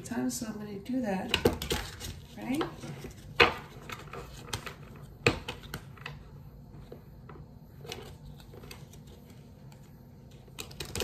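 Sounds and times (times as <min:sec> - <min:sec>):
cards being shuffled: 0:07.8 - 0:11.0.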